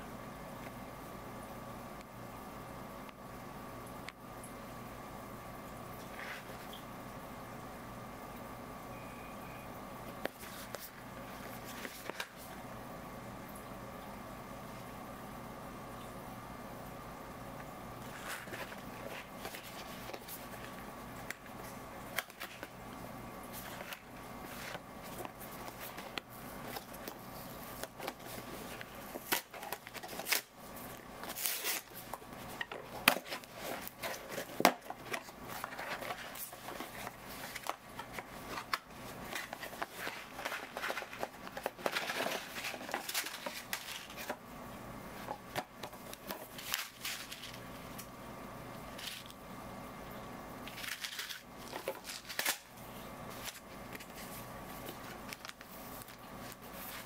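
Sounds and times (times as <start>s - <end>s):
cardboard box being unpacked: 31.2s - 44.4s.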